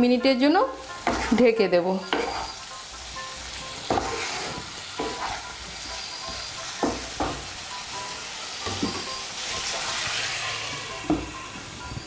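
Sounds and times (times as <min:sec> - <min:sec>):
food sizzling in a pan: 0:00.0 - 0:12.0
spatula scraping and knocking a pan: 0:01.0 - 0:02.6, 0:03.6 - 0:05.7, 0:06.3 - 0:07.5.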